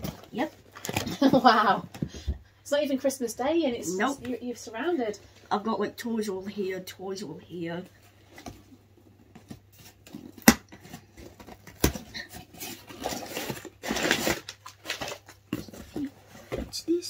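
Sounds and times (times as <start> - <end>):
cardboard and packaging rustling: 0.0 - 2.4, 8.0 - 16.9.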